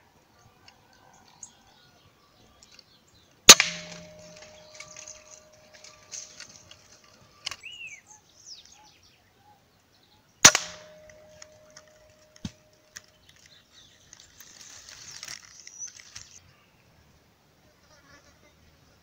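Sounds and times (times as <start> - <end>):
rifle shot: 3.5 - 6.5, 10.4 - 12.7
faint bird chirps: 4.3 - 10.4.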